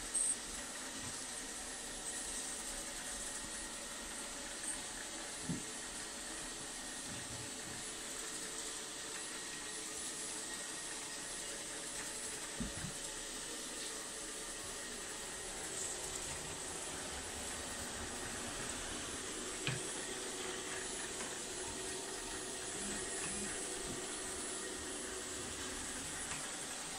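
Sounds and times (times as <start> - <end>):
robot vacuum cleaner whirring: 0.0 - 26.9.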